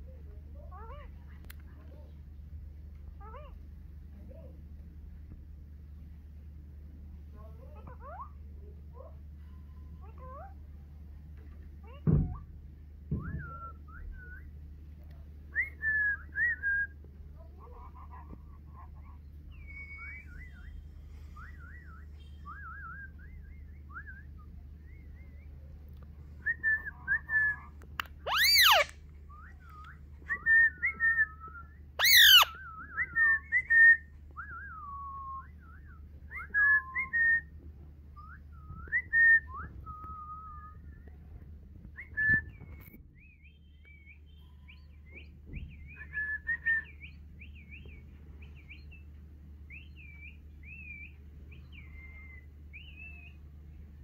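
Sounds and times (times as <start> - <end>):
parakeet whistled chirps: 26.8 - 29.6, 30.6 - 34.1, 49.7 - 53.4
parakeet screeches: 28.2 - 28.9, 32.0 - 32.6.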